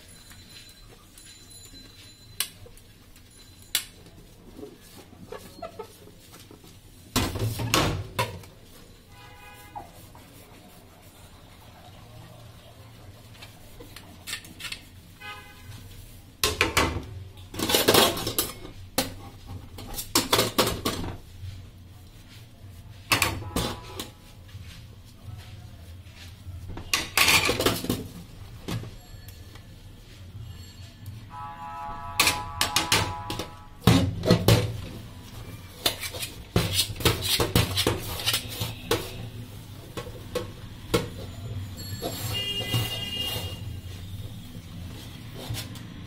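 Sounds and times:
sponge scrubbing dishes: 4.7s - 15.0s
crockery and cutlery clattering: 26.9s - 28.8s.

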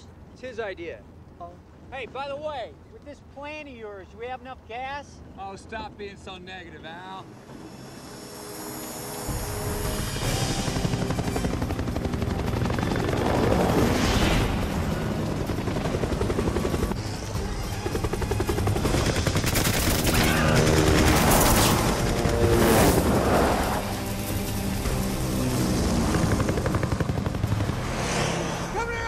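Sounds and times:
film score music: 5.2s - 29.0s
helicopter rotor chop: 7.3s - 29.0s.

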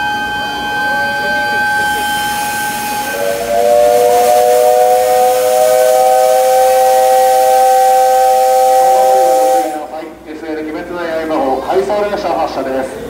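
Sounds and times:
steam locomotive whistle blast: 0.0s - 10.1s.

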